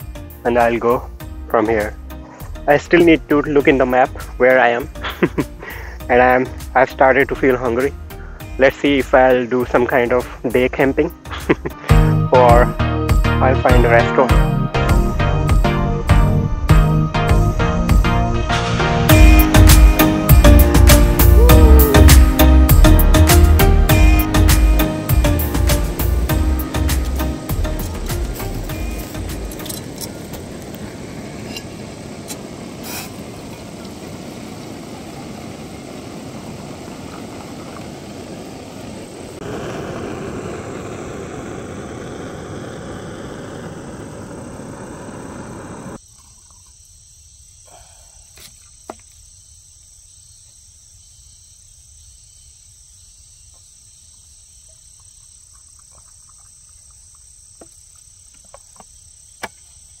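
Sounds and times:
insects chirping: 0.0s - 12.4s, 13.1s - 60.0s
steady rushing noise: 25.0s - 46.0s.

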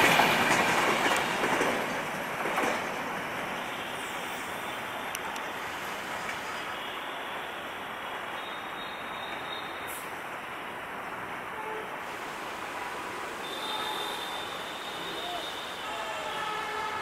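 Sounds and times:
train wheels rumbling on track: 0.0s - 6.7s.

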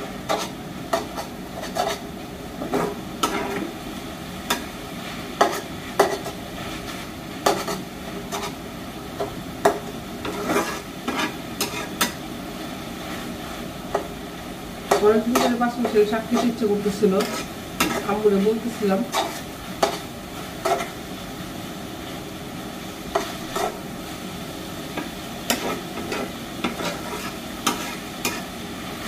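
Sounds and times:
spatula scraping in a pan: 0.0s - 3.8s, 4.5s - 12.2s, 14.8s - 21.1s, 23.1s - 23.9s, 24.9s - 28.7s
greens sizzling: 0.0s - 29.0s.

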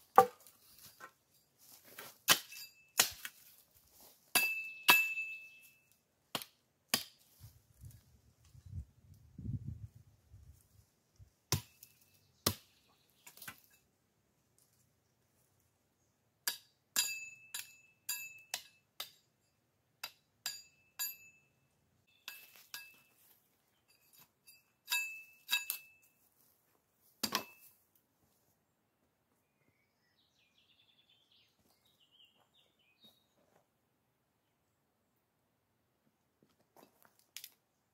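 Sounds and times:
faint bird chirps: 29.3s - 33.4s.

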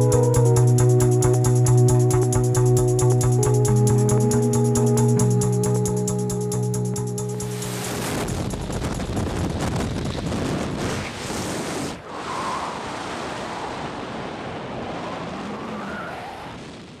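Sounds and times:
wind buffeting microphone: 7.8s - 15.6s.

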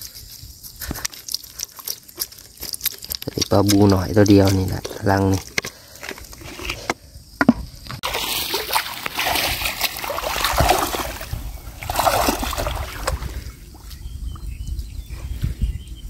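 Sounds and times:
water splashing and sloshing: 7.9s - 14.0s.

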